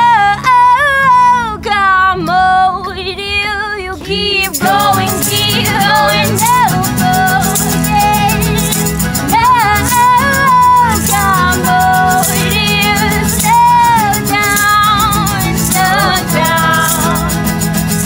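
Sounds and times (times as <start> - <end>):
woman singing: 0.0 - 17.5
strummed acoustic guitars: 0.0 - 18.0
voices singing along: 0.0 - 18.0
tambourine shaken: 4.4 - 18.0.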